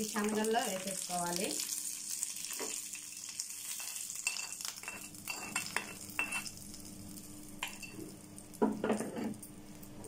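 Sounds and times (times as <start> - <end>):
hot oil sizzling faintly: 0.0 - 10.0
steel spoon scraping and clinking: 3.7 - 6.5, 8.9 - 9.5.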